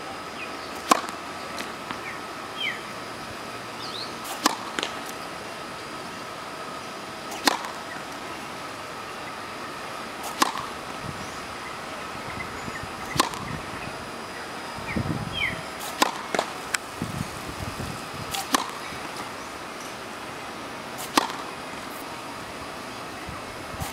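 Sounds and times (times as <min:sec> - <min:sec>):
racket hitting tennis ball: 0:00.8 - 0:02.0, 0:04.2 - 0:05.2, 0:07.3 - 0:08.0, 0:10.2 - 0:10.8, 0:13.0 - 0:13.5, 0:15.8 - 0:16.8, 0:18.3 - 0:19.3, 0:21.0 - 0:22.1.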